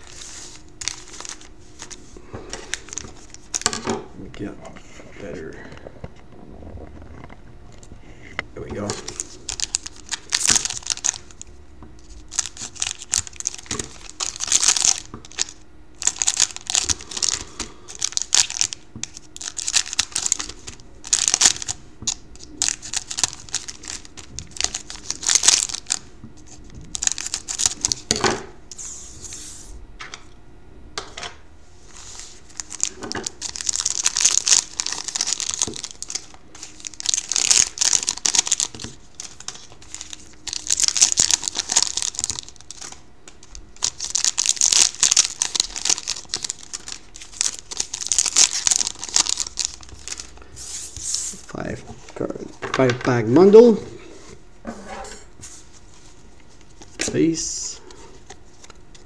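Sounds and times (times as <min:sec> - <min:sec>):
foil wrappers crinkling: 0:00.0 - 0:03.8, 0:08.7 - 0:29.4, 0:31.8 - 0:51.4, 0:57.7 - 0:59.0.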